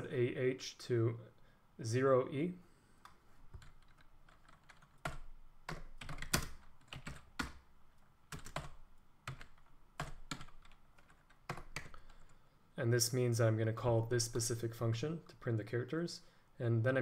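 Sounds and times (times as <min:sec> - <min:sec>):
computer keyboard typing: 0:03.0 - 0:07.6, 0:08.3 - 0:12.4.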